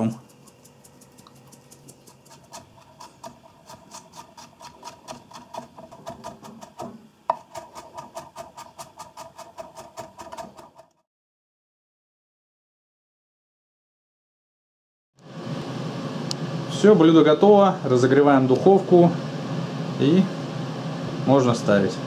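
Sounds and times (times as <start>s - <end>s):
knife chopping on wooden board: 2.0s - 10.8s.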